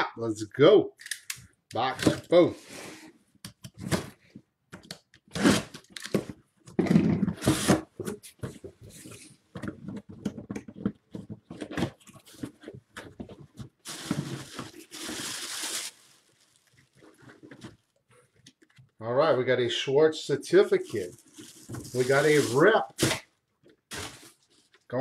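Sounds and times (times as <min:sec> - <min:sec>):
knocks and tearing rustles: 0:05.3 - 0:19.0, 0:20.8 - 0:24.9
plastic wrapping crinkling: 0:12.2 - 0:18.0, 0:20.6 - 0:23.2.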